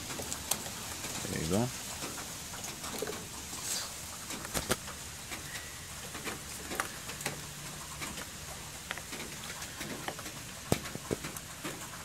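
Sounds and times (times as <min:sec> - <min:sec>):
heavy rain hissing: 0:00.0 - 0:12.0.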